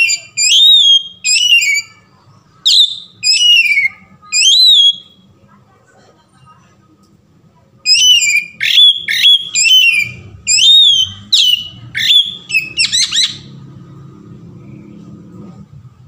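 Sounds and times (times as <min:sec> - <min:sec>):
bird singing whistled phrases: 0:00.0 - 0:05.2, 0:07.8 - 0:13.5.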